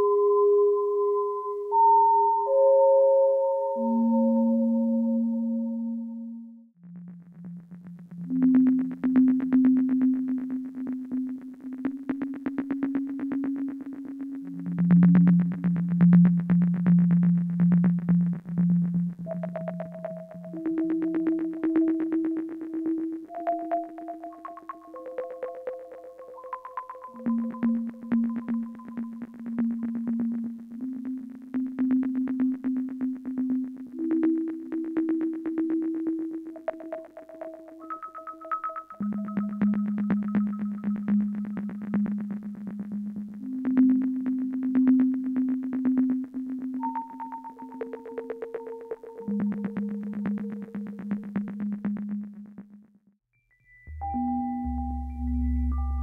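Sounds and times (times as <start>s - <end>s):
synthesizer ringing tones: 53.9s - 56.0s.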